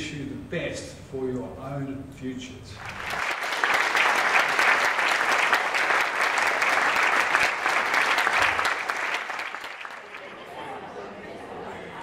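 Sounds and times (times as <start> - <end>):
audience applauding: 2.8 - 10.8.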